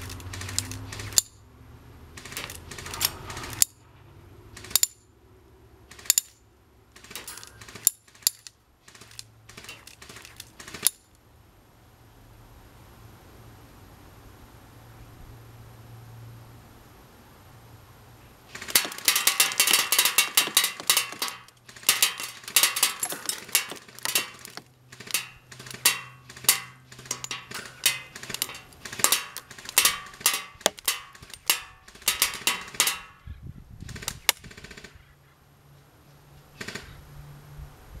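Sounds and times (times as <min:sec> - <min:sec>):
pellets clattering into targets: 0:07.2 - 0:08.0, 0:18.5 - 0:33.2
airsoft rifle full-auto fire: 0:33.9 - 0:35.0, 0:36.6 - 0:37.0.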